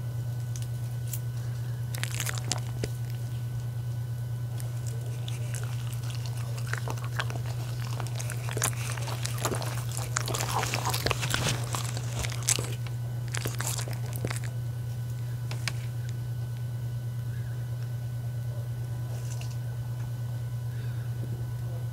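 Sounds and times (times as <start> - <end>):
steady low hum: 0.0 - 21.9
dogs chewing wet food: 1.4 - 3.8, 4.4 - 16.2.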